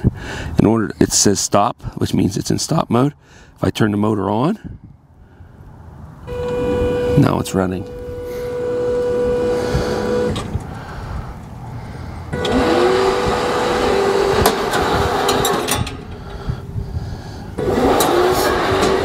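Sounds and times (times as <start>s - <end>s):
electric motor whine: 6.3s - 10.5s, 12.4s - 15.7s.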